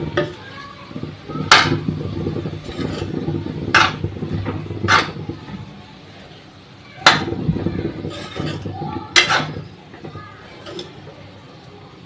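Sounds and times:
spatula scraping metal pan: 0.0 - 5.6, 7.0 - 9.8, 10.5 - 11.0
metal spatula stirring: 0.0 - 5.7, 7.0 - 11.1.

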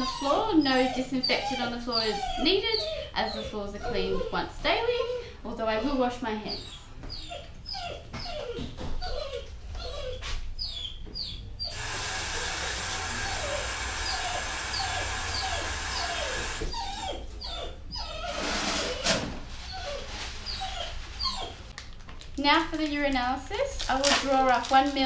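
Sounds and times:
dog whining: 0.0 - 21.7
tap water running into sink: 11.7 - 16.7.

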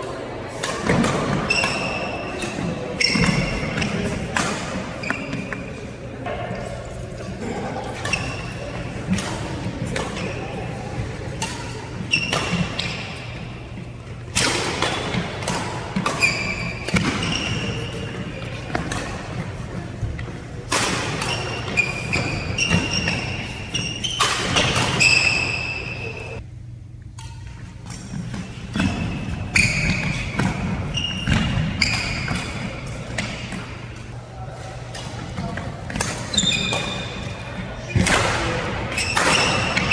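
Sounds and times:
racket striking shuttlecock: 0.5 - 5.7, 7.9 - 25.8, 34.9 - 37.4
shoes squeaking on gym floor: 3.0 - 4.1, 5.0 - 5.9, 16.0 - 19.2, 21.2 - 26.4, 28.4 - 33.5, 36.2 - 38.0.

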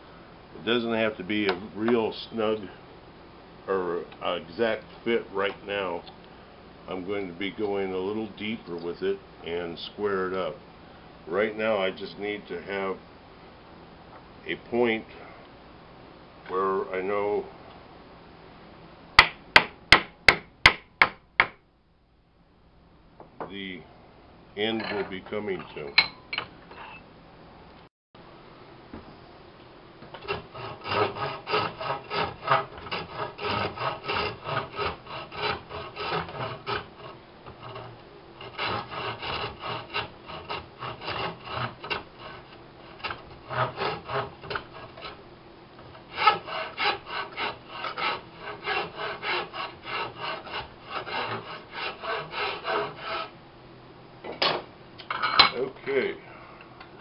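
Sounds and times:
hand rasp scraping wood: 30.2 - 45.2, 45.8 - 53.3.

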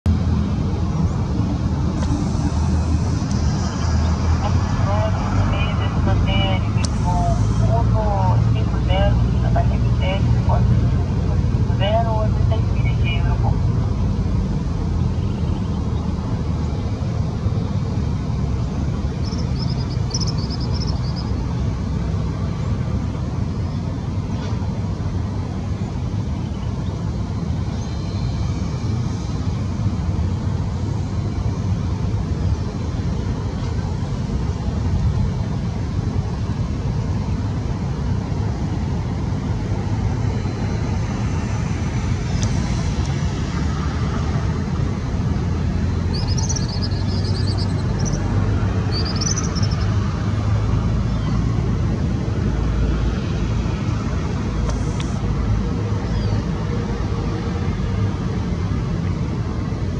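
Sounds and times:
distant jet engines: 0.1 - 59.9
wind rumbling on microphone: 0.1 - 59.9
high bird chirps: 19.2 - 21.3, 46.1 - 48.3, 48.9 - 49.9.

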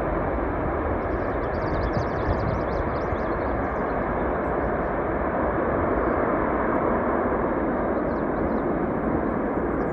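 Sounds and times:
jet engine roar: 0.0 - 9.9.

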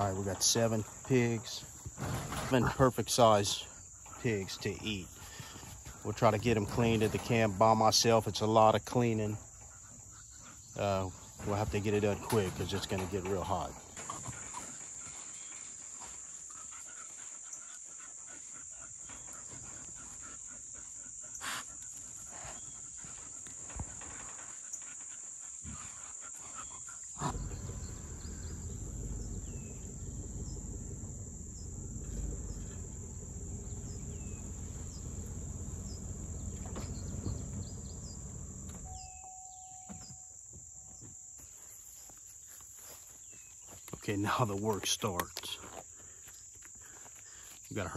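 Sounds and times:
insects chirring: 0.0 - 47.9
low rumbling noise: 27.2 - 39.9.

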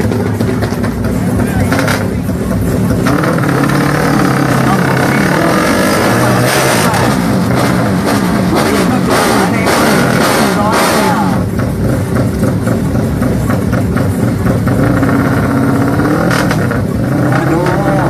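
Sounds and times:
motorcycle engine revving: 0.0 - 18.0.

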